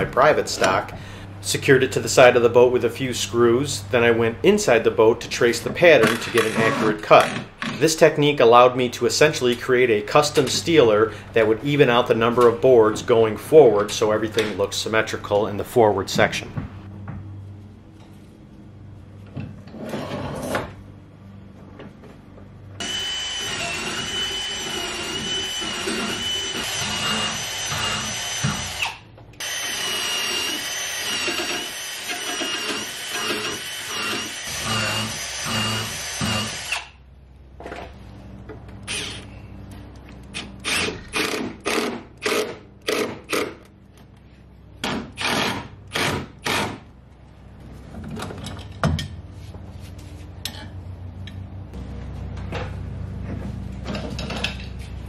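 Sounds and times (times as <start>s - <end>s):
cordless drill whining into wood: 22.8s - 37.0s.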